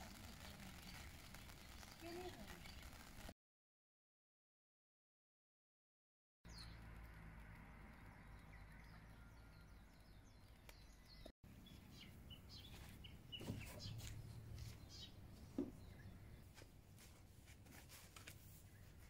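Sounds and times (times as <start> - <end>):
small birds chirping: 0.0 - 3.3, 6.5 - 17.3, 18.4 - 19.0.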